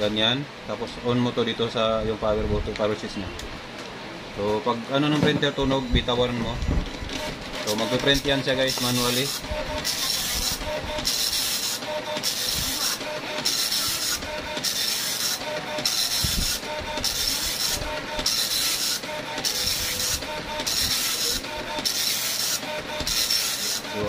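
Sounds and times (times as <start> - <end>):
dot-matrix printer head buzzing: 6.2 - 24.0.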